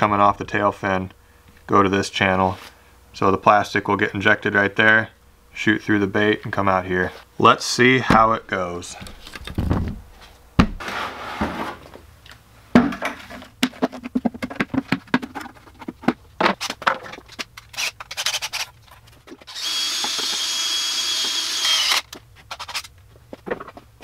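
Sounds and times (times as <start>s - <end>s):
plastic bucket clattering: 12.8s - 17.4s
power drill whining: 19.4s - 22.9s.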